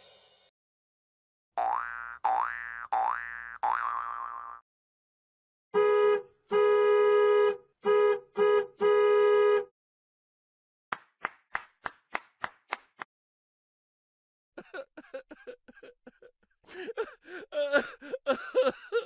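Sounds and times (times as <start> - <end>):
horn-like electronic tone: 5.8 - 9.7.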